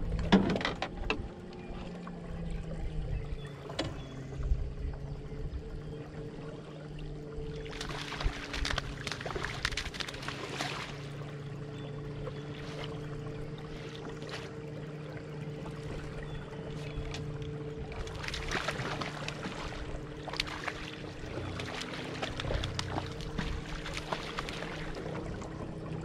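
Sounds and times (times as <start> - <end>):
boat motor humming: 0.0 - 26.0
fish splashing at water surface: 7.6 - 11.1, 17.9 - 25.2.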